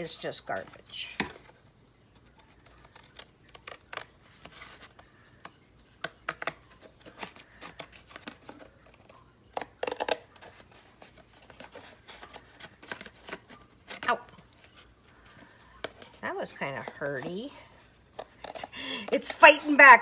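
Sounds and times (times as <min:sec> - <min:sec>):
paper rustling: 0:00.0 - 0:19.2
scissors snipping paper: 0:02.3 - 0:08.7.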